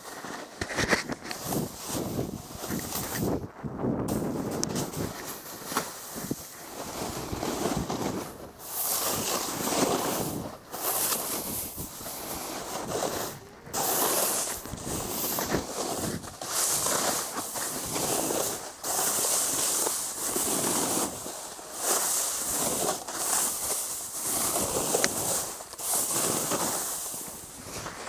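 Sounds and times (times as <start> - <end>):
snowboard scraping through snow: 0.0 - 28.0
wind over microphone: 0.5 - 18.6.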